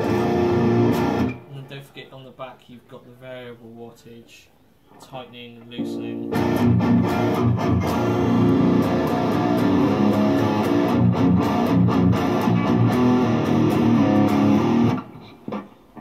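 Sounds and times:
electric guitar fast picked notes: 6.2s - 15.1s.

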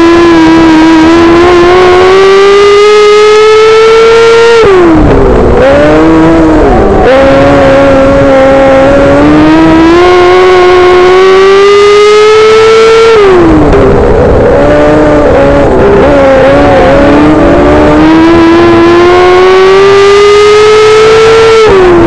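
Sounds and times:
race car engine revving: 0.0s - 22.0s.

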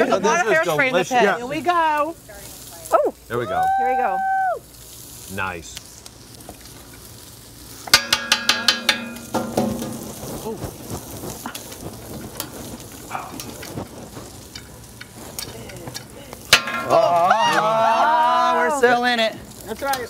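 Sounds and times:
food sizzling on a griddle: 0.0s - 20.0s
metal spatulas clanging: 7.9s - 10.2s, 16.5s - 17.2s.

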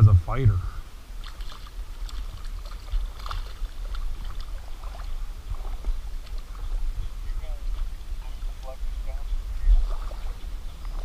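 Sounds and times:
low steady rumble: 0.0s - 11.0s
fish splashing in water: 1.1s - 7.2s.

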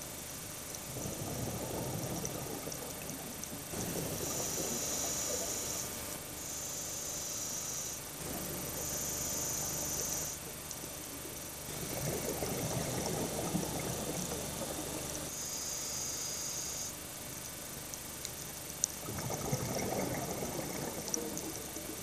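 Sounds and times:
bubbling gurgling exhale: 0.8s - 5.9s, 11.1s - 15.3s, 18.9s - 22.0s.

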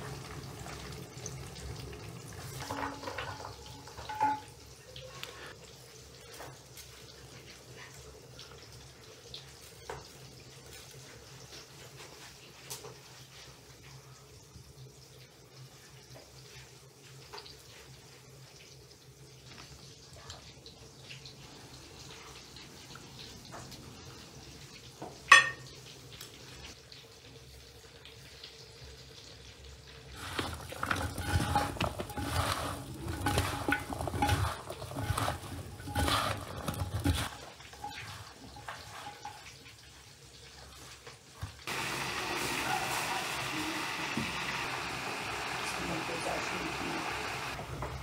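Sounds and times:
dishes clattering: 2.5s - 4.7s, 25.3s - 25.7s, 30.2s - 39.6s
dish clink: 2.6s - 4.7s, 25.3s - 25.7s.

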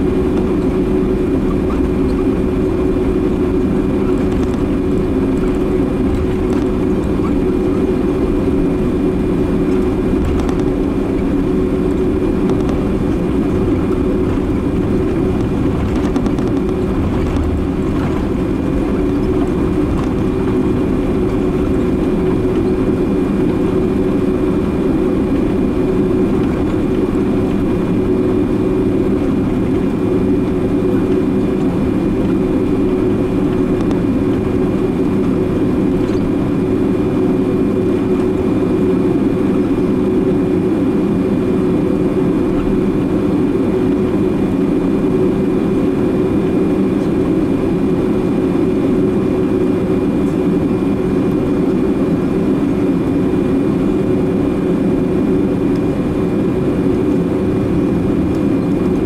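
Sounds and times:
jet engines humming: 0.0s - 59.0s
thin steady whine: 0.0s - 59.0s.

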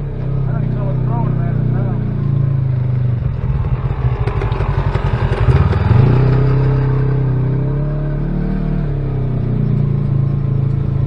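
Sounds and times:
off-road vehicle engine: 0.0s - 11.0s
rattling and clatter: 3.1s - 7.2s.

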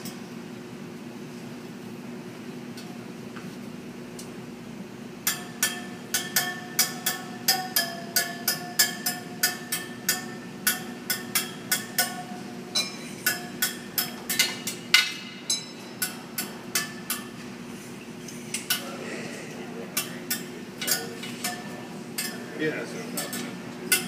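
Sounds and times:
metal spokes pinging when tapped: 5.3s - 17.3s.

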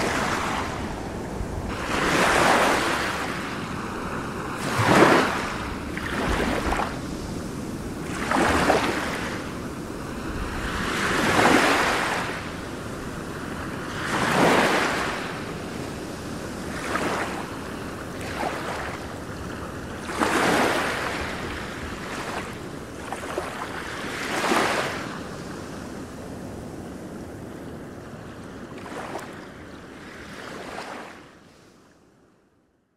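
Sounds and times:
wind gusting over microphone: 0.0s - 17.4s.

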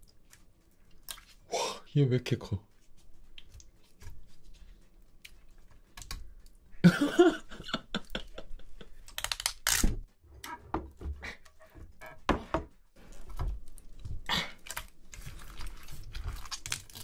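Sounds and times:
wet clicks and smacks: 0.0s - 1.4s, 3.3s - 4.2s, 5.0s - 6.7s, 9.0s - 9.9s.

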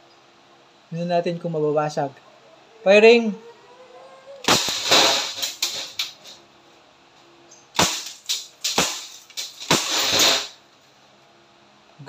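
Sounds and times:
air pistol shots: 4.4s - 6.3s, 7.8s - 10.6s
glass bottles shattering: 4.5s - 6.3s, 7.8s - 10.6s.

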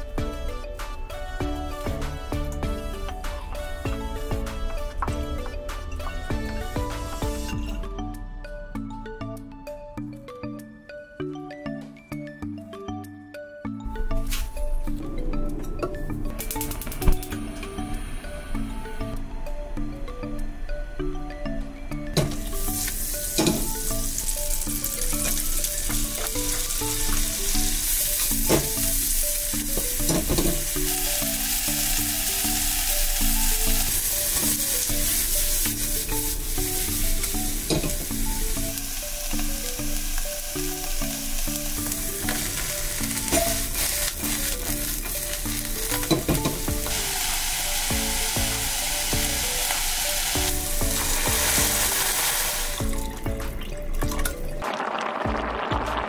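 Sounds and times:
mushrooms sizzling in a saucepan: 22.6s - 52.9s.

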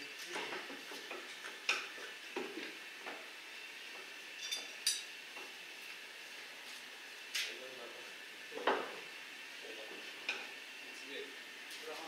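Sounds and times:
metal tools clinking and scraping: 4.4s - 5.1s.

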